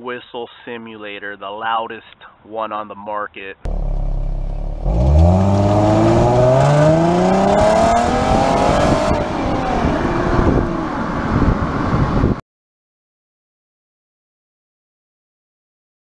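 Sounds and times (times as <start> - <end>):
car engine idling and revving: 3.7 - 12.2.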